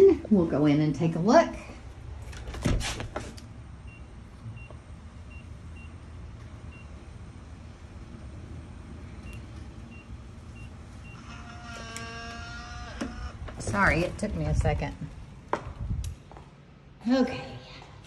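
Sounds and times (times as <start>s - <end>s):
low outdoor background: 0.0s - 18.0s.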